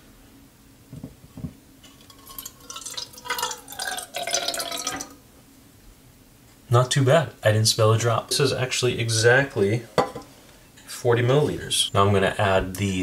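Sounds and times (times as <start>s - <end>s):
liquid trickling into bottle: 1.9s - 5.2s.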